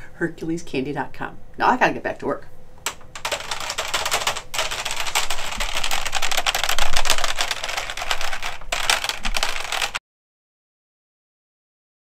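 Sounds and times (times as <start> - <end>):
fast keyboard typing: 2.9 - 10.0.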